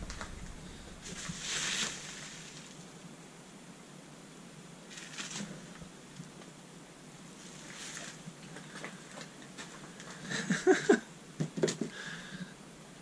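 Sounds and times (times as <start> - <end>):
rustling: 0.0 - 2.9, 4.9 - 6.5, 7.3 - 10.6.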